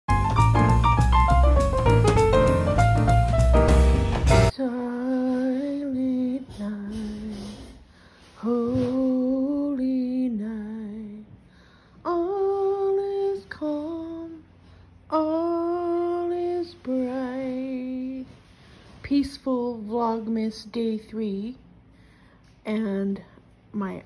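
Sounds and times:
woman singing unaccompanied: 0:04.5 - 0:07.8, 0:08.4 - 0:11.4, 0:12.0 - 0:14.5, 0:15.1 - 0:18.4.

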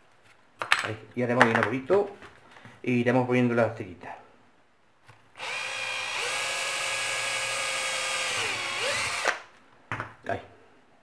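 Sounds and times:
cordless drill whining: 0:05.4 - 0:09.5.

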